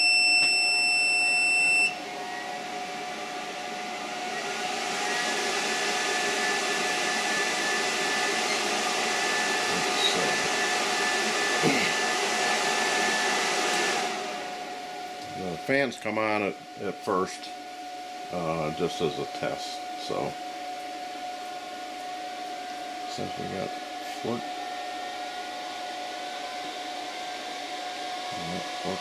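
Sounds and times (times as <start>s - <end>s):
high electronic beep: 0.0s - 2.0s
high whine: 0.0s - 20.5s
cooling fans running: 0.0s - 29.0s.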